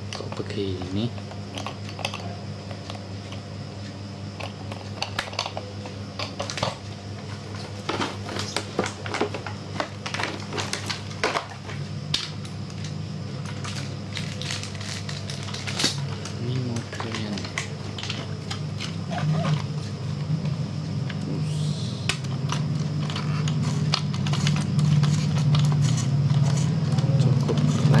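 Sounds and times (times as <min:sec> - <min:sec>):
steady low hum: 0:00.0 - 0:28.0
plastic packaging crinkling: 0:13.6 - 0:19.6.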